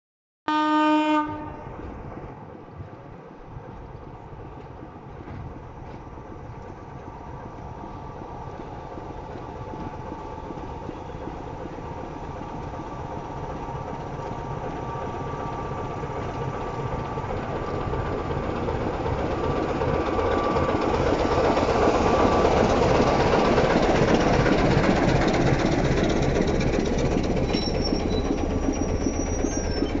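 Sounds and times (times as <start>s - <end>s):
diesel locomotive passing: 0.5s - 30.0s
brief high squeals: 27.5s - 30.0s.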